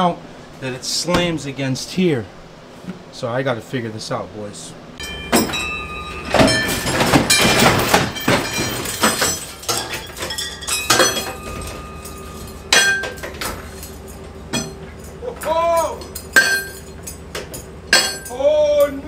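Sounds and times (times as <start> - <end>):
chain and engine clanking: 5.0 - 19.0.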